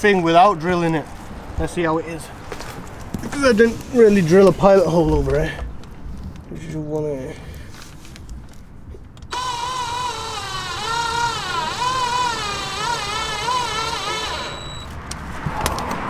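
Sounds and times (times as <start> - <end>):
cordless drill driving screw: 9.3 - 14.9.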